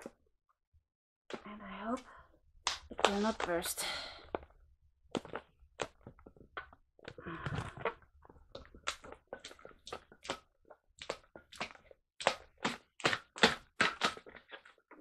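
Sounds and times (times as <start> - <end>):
balloon creaking and rubbing: 5.1 - 10.4.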